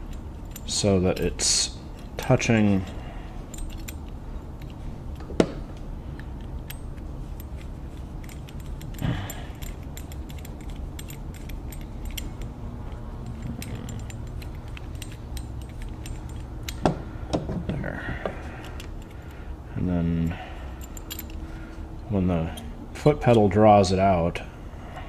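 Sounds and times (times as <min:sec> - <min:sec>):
small metal clicks: 0:00.0 - 0:17.0, 0:18.6 - 0:19.4, 0:20.2 - 0:21.8
handling noise: 0:00.0 - 0:23.5.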